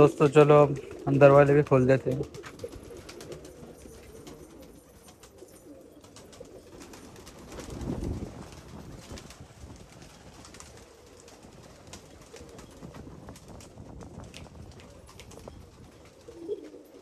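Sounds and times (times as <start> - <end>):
pigeons cooing: 0.0 - 7.5, 10.1 - 13.1, 14.5 - 17.0
wings flapping: 0.0 - 17.0.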